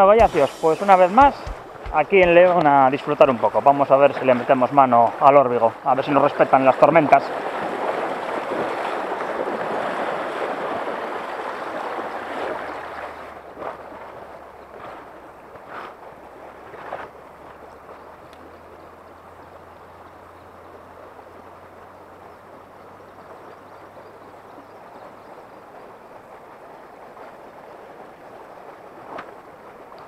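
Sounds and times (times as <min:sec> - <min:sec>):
river water running over gravel: 0:00.0 - 0:30.0
brief scuffs: 0:00.2 - 0:02.6.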